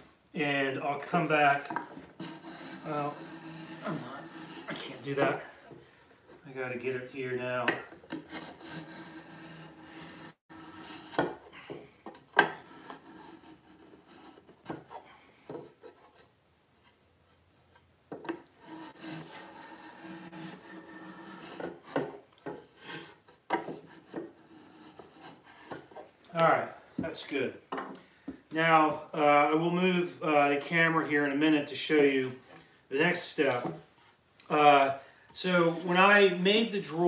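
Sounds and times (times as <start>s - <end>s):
hand plane scraping wood: 0.7s - 16.3s, 17.3s - 27.4s, 35.4s - 37.0s.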